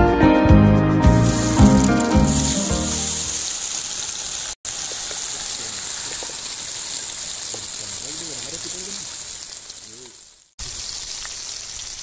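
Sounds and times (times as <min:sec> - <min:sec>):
background music: 0:00.0 - 0:03.3
fish sizzling in hot oil: 0:01.2 - 0:12.0.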